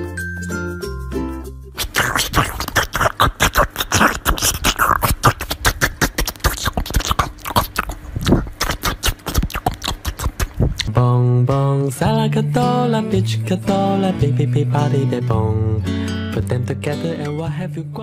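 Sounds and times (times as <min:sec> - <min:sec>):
short tinkling music tune: 0:00.0 - 0:01.8
dog chewing watermelon crunches: 0:01.8 - 0:10.9.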